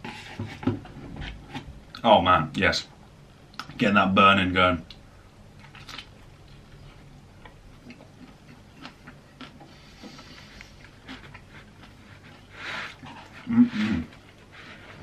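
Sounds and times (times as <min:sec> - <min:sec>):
person chewing food: 0:05.6 - 0:15.0.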